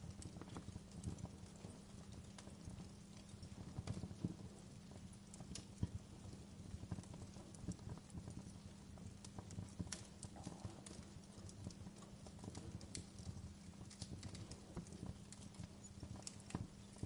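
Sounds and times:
fire crackling and popping: 0:00.0 - 0:17.0.

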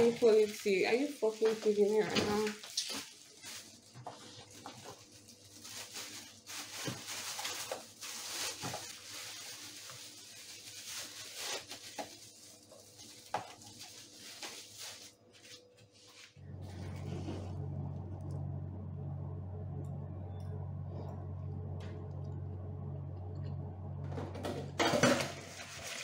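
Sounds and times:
plastic bag rustling and crinkling: 0:00.0 - 0:17.9, 0:24.8 - 0:26.0.

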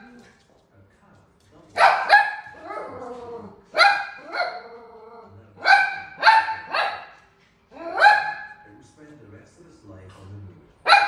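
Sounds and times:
small dog barking: 0:01.8 - 0:03.0, 0:03.7 - 0:04.8, 0:05.6 - 0:07.2, 0:07.8 - 0:08.6.

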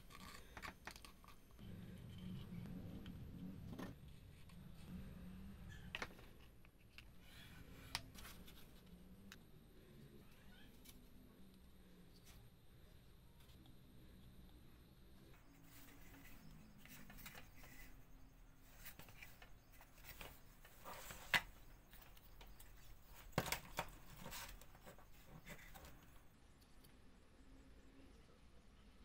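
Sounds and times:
wooden toy parts rubbing: 0:00.0 - 0:09.4, 0:15.2 - 0:26.3.

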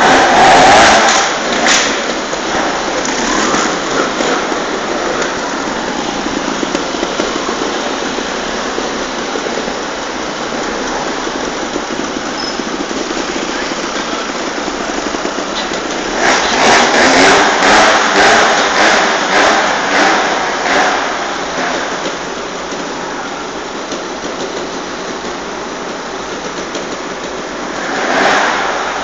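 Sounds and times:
motorcycle engine revving: 0:00.0 - 0:29.0.

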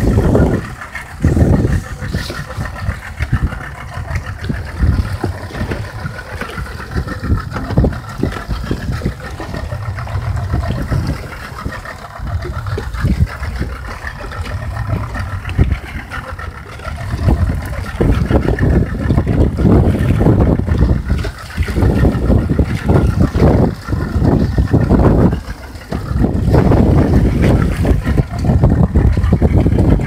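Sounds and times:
outboard motor idling: 0:00.0 - 0:30.0
wind rumbling on microphone: 0:00.0 - 0:30.0.

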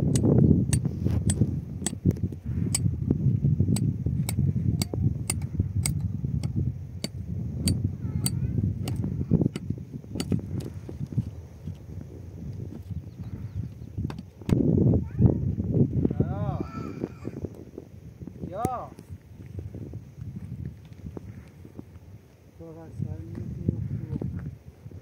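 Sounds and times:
wind on microphone: 0:00.0 - 0:25.0
sharp ticks: 0:03.8 - 0:10.4.

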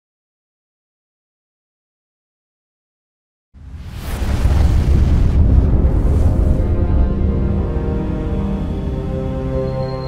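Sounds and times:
low rumble: 0:03.6 - 0:09.2
cinematic logo music: 0:03.9 - 0:10.0.

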